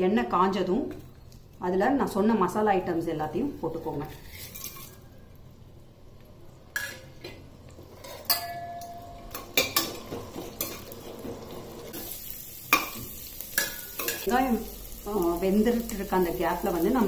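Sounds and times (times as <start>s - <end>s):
light sizzle: 0.1s - 17.0s
metal spoon clinking and scraping pan: 3.7s - 5.2s, 6.8s - 14.3s.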